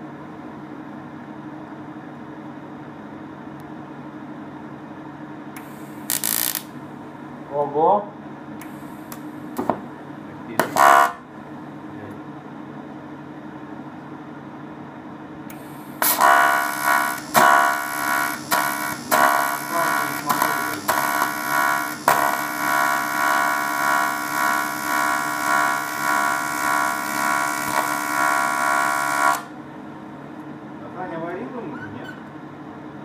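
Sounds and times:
welding arc buzzing: 5.6 - 7.0, 8.6 - 9.8, 10.5 - 11.3, 15.5 - 29.6.

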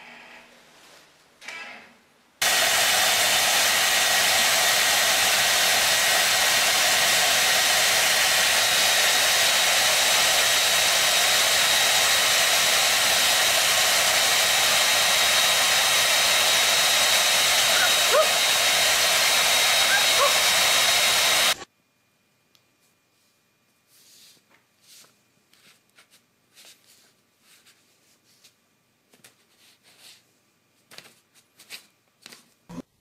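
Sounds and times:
hair dryer running: 2.4 - 21.7.

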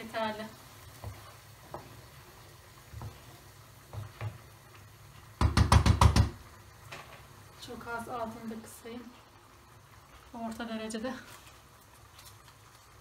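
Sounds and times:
wooden spoon stirring in a pan: 0.0 - 13.0
spoon knocking against a pan: 5.4 - 6.4.

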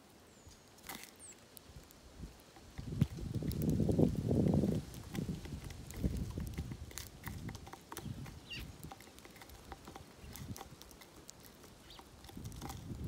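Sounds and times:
beaks tapping on seed tray: 2.6 - 13.0
faint sparrow chirps: 8.0 - 8.8, 11.8 - 12.1.

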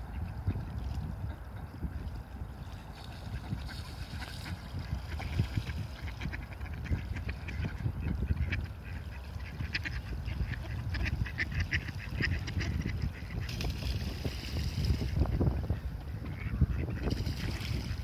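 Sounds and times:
low wind rumble on microphone: 0.0 - 18.0
ducks quacking: 3.3 - 13.8, 15.2 - 17.6.

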